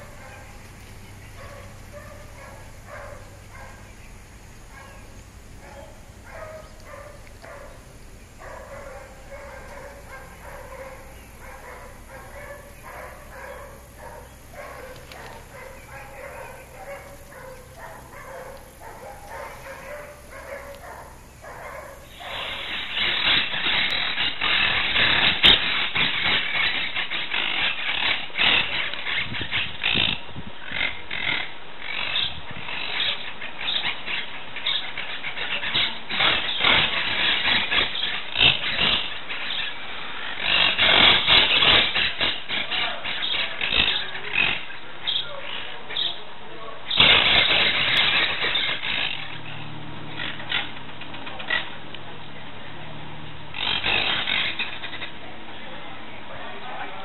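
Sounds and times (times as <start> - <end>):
low steady hum: 0.0 - 25.0, 46.2 - 57.0
parakeets squawking: 0.0 - 46.2, 46.9 - 51.8, 53.5 - 55.3.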